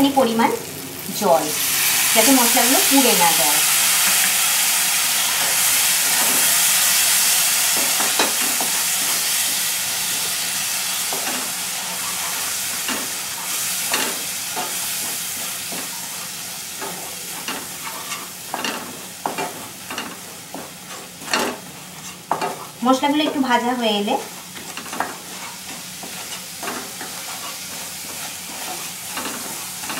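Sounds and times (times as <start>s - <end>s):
spices sizzling in oil: 0.0s - 29.9s
wooden spatula scraping pan: 24.2s - 29.9s.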